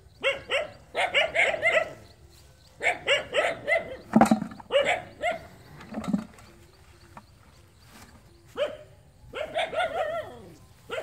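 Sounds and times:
dog barking: 0.2s - 2.1s, 2.8s - 4.0s, 4.7s - 5.5s, 8.6s - 11.0s.

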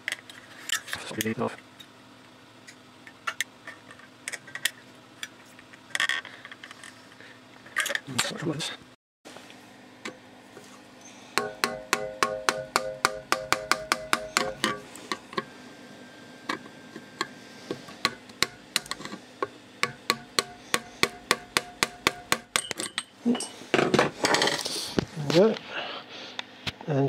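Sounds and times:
screwdriver clicking on metal lid: 18.0s - 19.2s.

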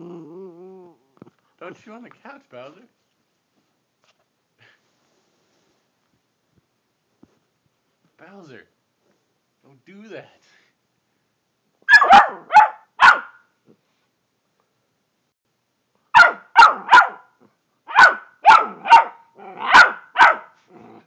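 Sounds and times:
dog barking: 11.9s - 13.4s, 16.1s - 20.6s.

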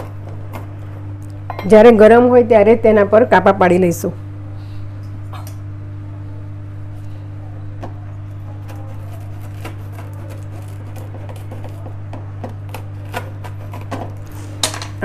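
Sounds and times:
steady low hum: 0.0s - 15.0s
puffed rice crackling under knife: 8.6s - 14.7s.

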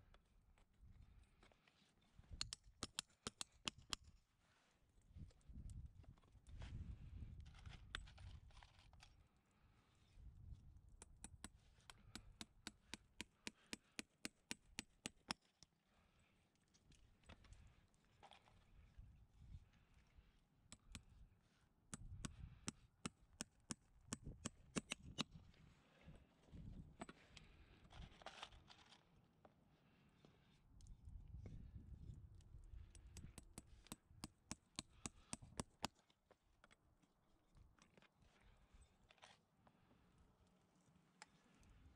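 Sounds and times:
hammer tapping horseshoe nail: 2.4s - 4.0s, 11.0s - 15.4s, 21.9s - 25.3s, 33.0s - 36.0s
hammer striking horseshoe nail: 21.9s - 25.3s.

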